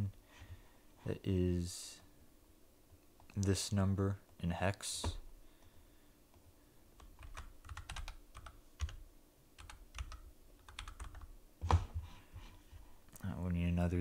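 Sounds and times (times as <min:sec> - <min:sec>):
typing on computer keyboard: 0:07.0 - 0:09.0, 0:09.6 - 0:11.3.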